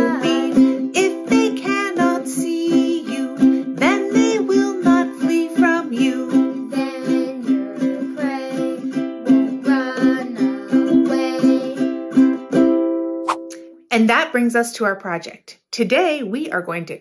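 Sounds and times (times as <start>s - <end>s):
woman and boy singing: 0.0s - 12.0s
ukulele strumming chords: 0.0s - 13.7s.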